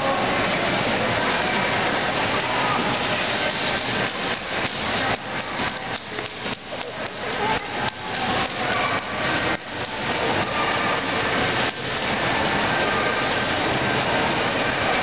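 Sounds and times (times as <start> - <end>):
busy shopping mall noise: 0.0 - 15.0.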